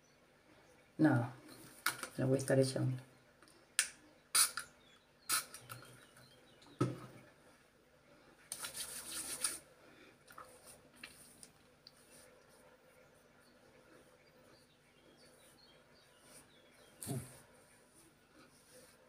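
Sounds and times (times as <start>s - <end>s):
cream rubbing on skin: 8.5s - 9.6s.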